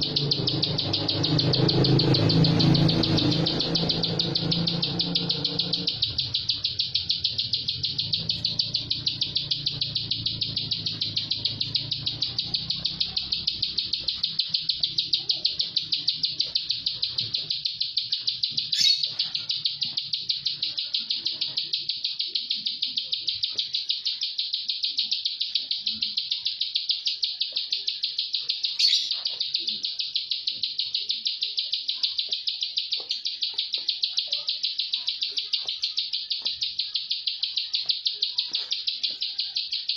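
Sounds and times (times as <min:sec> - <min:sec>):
sharp sounds: 0:00.0 - 0:21.8
bird singing rapid high notes: 0:00.0 - 0:39.9.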